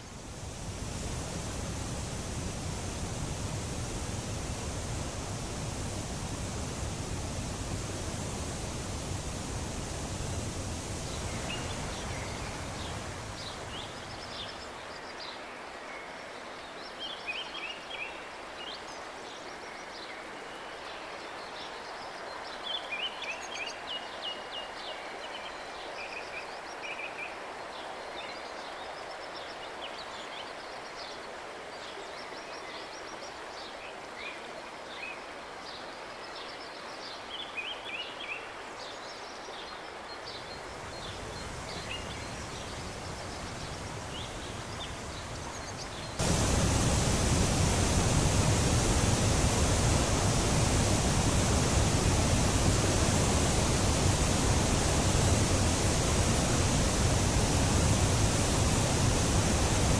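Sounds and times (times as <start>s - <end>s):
flowing river water: 0.0s - 59.9s
songbirds chirping: 36.4s - 59.9s.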